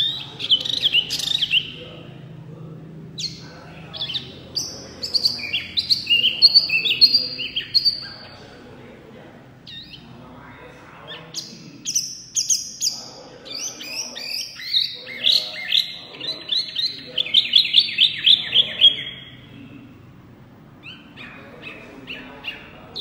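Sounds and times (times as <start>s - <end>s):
songbird whistling: 0.0s - 2.0s, 3.2s - 8.4s, 11.0s - 19.5s.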